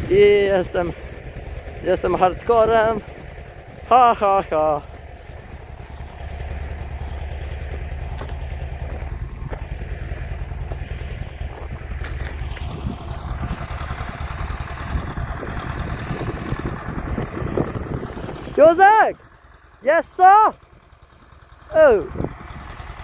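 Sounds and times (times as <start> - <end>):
footsteps on grass and soil: 0.0 - 14.3
tractor engine running: 0.0 - 23.0.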